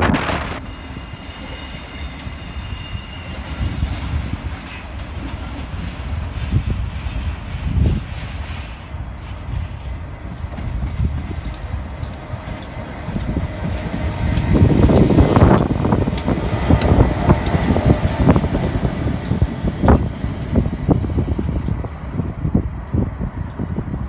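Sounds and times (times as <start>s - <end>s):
diesel locomotive engine rumble: 0.0s - 24.0s.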